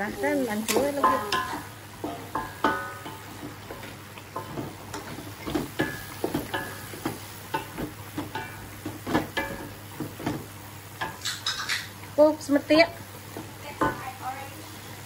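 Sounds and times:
spatula scraping wok: 0:00.0 - 0:12.0
frying sizzle: 0:00.0 - 0:15.0.

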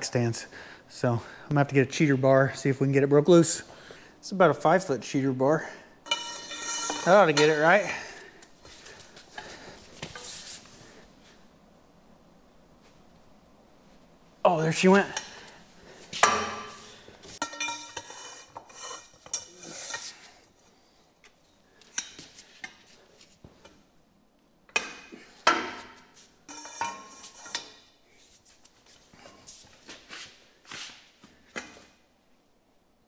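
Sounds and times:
ringing metal knocks: 0:06.1 - 0:07.5
metal bar clanking: 0:06.1 - 0:07.9, 0:16.2 - 0:18.2.

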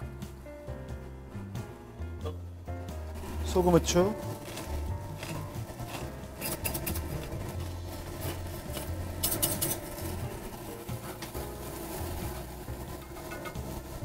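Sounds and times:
food sizzling in butter: 0:02.9 - 0:14.0.

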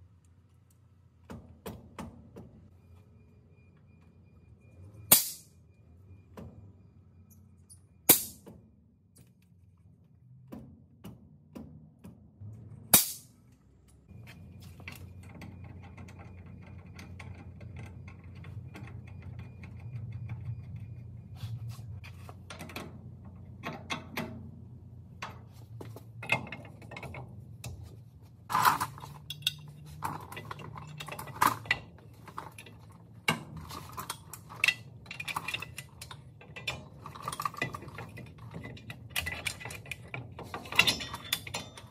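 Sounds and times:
metal tools clinking and knocking: 0:28.5 - 0:41.9.

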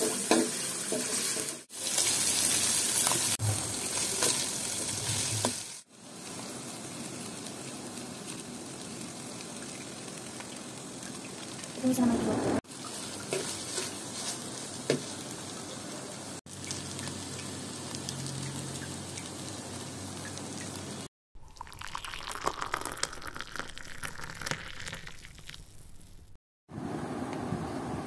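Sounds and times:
noodles sizzling in metal pan: 0:00.0 - 0:12.0, 0:12.7 - 0:21.1.

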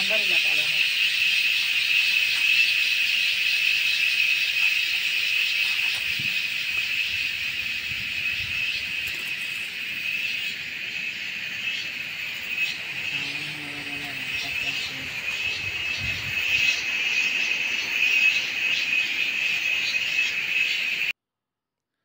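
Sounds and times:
chorus of insects droning: 0:00.0 - 0:21.1.

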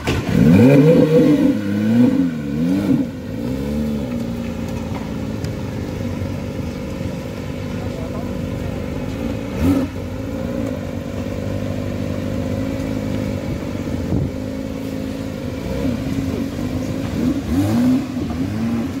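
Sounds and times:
car engine idling: 0:00.0 - 0:19.0
engine throttle blips: 0:00.0 - 0:19.0.

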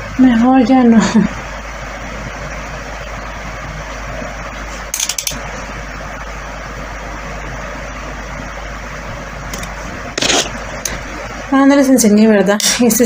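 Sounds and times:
low constant hum: 0:00.0 - 0:13.0.

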